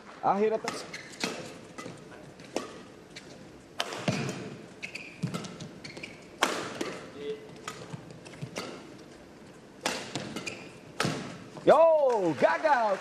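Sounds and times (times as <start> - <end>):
shoes squeaking on court: 0.0 - 11.7
rackets hitting shuttlecock: 0.6 - 12.5.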